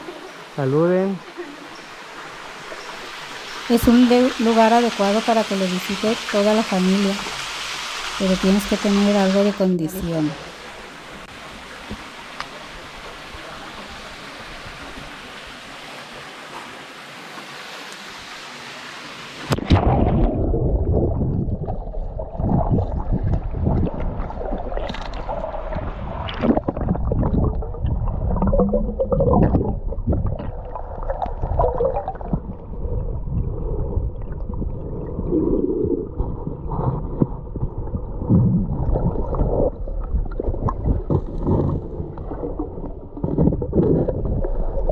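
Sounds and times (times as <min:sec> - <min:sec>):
water rushing over rocks: 0:00.0 - 0:32.7
underwater gurgling and sloshing: 0:19.4 - 0:44.9
underwater thumps: 0:19.5 - 0:34.7, 0:35.8 - 0:44.9.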